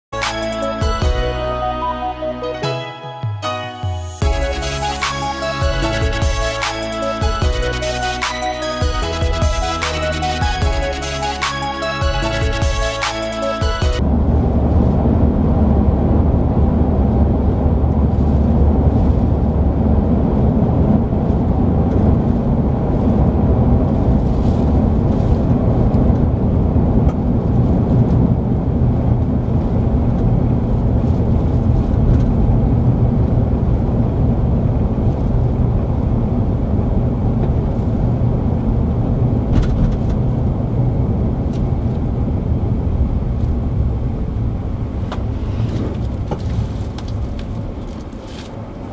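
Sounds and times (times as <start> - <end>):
engine and tyre rumble inside car: 14.0 - 48.9.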